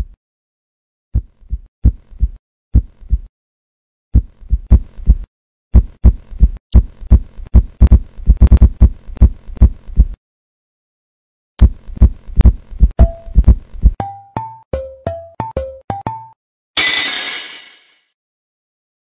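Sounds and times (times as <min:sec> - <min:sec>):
low thumping heartbeat beats: 0:01.2 - 0:03.3, 0:04.1 - 0:10.2, 0:11.6 - 0:14.0.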